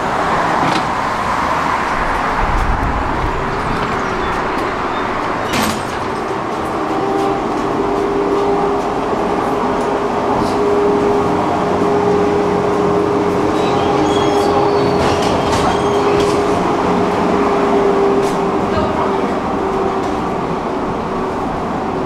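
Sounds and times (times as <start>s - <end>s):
tram wheels rumbling on rails: 0.0s - 22.0s
tram whine: 0.0s - 22.0s.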